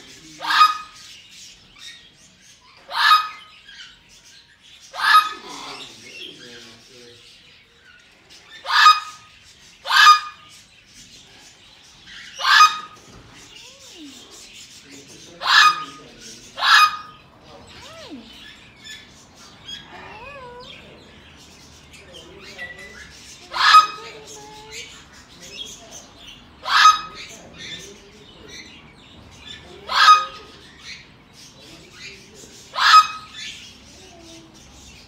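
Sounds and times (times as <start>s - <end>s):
parrot squawking: 0.4s - 1.2s, 2.7s - 4.0s, 4.9s - 6.1s, 8.5s - 10.5s, 12.1s - 14.3s, 15.3s - 21.1s, 22.5s - 25.1s, 26.5s - 27.8s, 29.6s - 31.1s, 32.7s - 34.4s.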